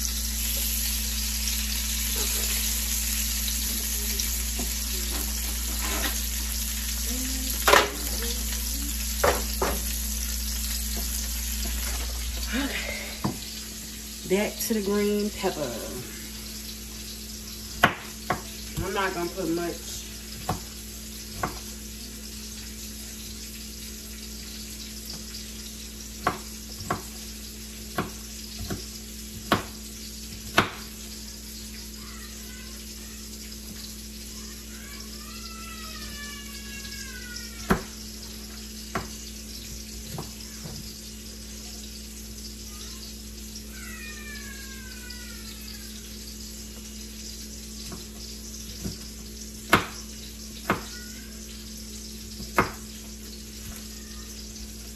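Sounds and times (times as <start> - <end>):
fish sizzling in a skillet: 0.0 - 54.9
knife knocking on cutting board: 9.2 - 9.8, 13.2 - 13.4, 37.7 - 38.0, 38.9 - 39.2.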